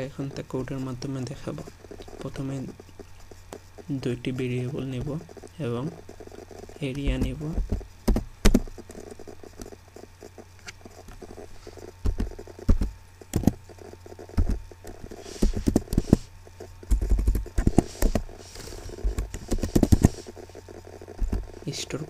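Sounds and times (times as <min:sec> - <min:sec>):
low hum: 0:00.0 - 0:22.0
keyboard keys clicking: 0:12.0 - 0:13.6, 0:16.8 - 0:18.2.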